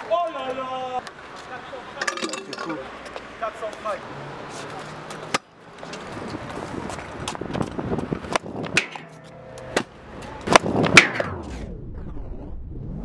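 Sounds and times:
scooter wheels rolling on paving: 0.0s - 11.0s
scooter deck clacking on ground: 5.1s - 11.3s.

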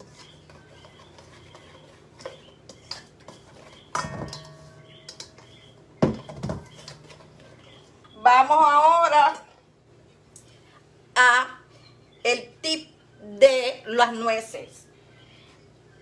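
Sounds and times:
whisk scraping in metal bowl: 0.0s - 5.7s
metal bowl clanking and ringing: 3.9s - 5.7s.

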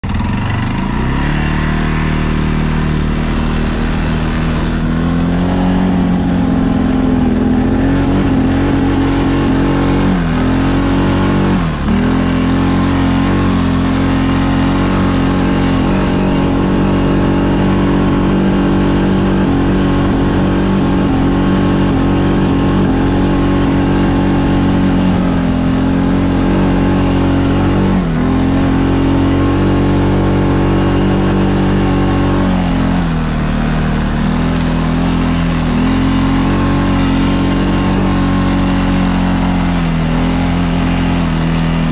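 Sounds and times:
atv engine running under load: 0.0s - 41.9s.

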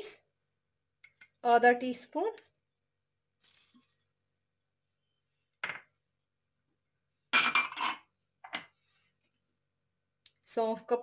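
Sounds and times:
metal spoon clinking on pot: 1.0s - 1.4s.

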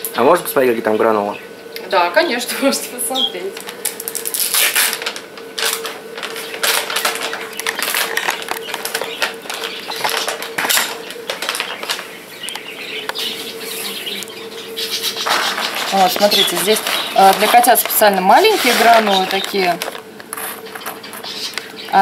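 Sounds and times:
faint hum: 0.0s - 22.0s
plastic bag crinkling: 3.5s - 21.5s.

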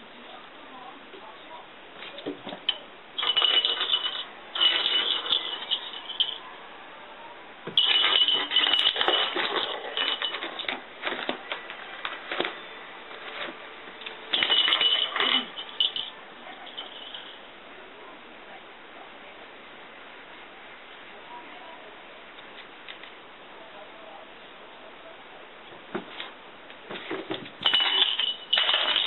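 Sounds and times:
small bells jingling: 3.2s - 6.5s, 7.8s - 10.8s, 14.3s - 17.4s, 27.6s - 29.0s.

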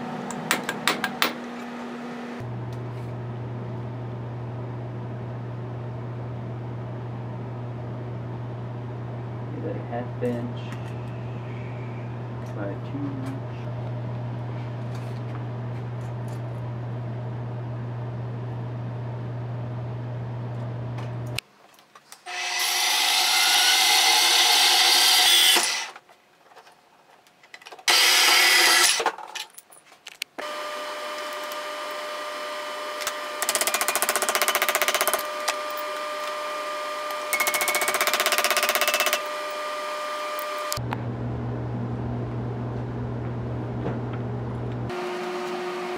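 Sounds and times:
steady low hum: 1.9s - 21.4s, 39.2s - 45.0s
band saw cutting metal: 22.2s - 26.0s, 27.9s - 29.0s, 30.4s - 40.8s
power tool whining: 22.3s - 26.0s, 27.9s - 29.0s, 30.4s - 40.8s.

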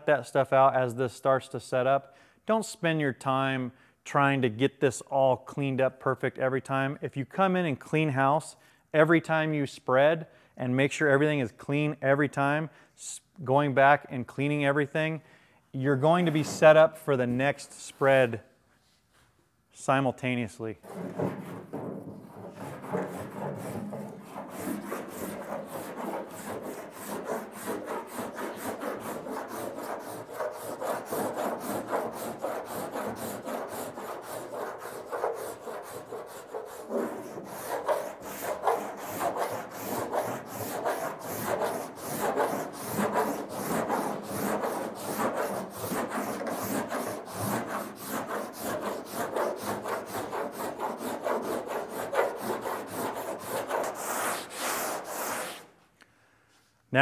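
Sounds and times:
rasp scraping body filler: 20.8s - 55.7s.

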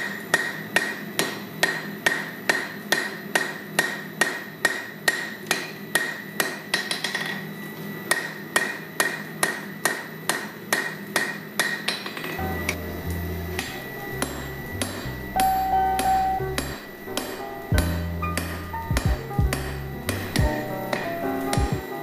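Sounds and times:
hammer striking hot metal on anvil: 12.4s - 21.9s.

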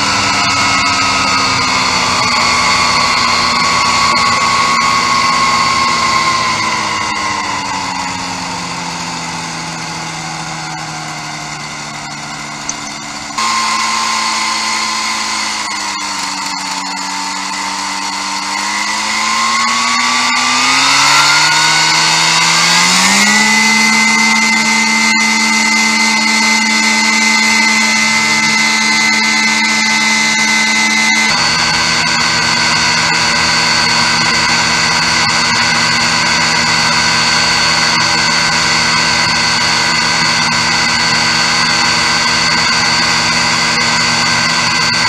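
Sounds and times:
ultralight aircraft engine running: 0.0s - 45.0s.

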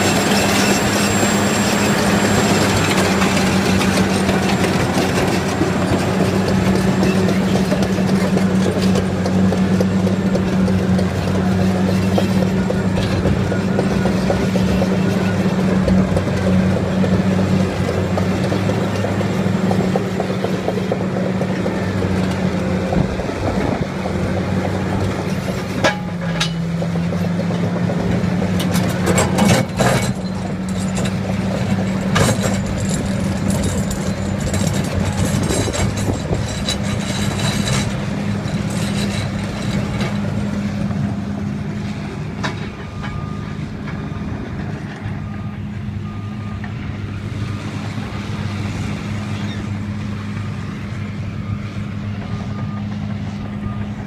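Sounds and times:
bulldozer diesel engine running: 0.0s - 54.0s
sharp metal clanks: 25.8s - 26.8s.

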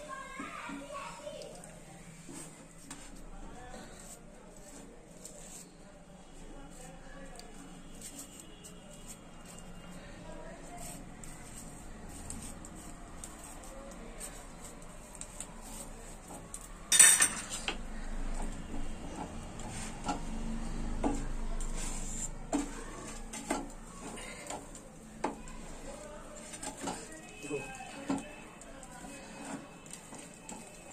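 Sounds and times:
spatula scraping griddle: 19.0s - 27.2s, 28.8s - 30.9s.

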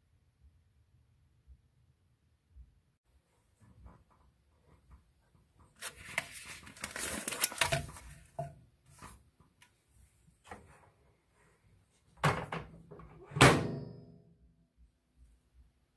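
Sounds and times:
paper bag rustling and crinkling: 5.7s - 8.4s.

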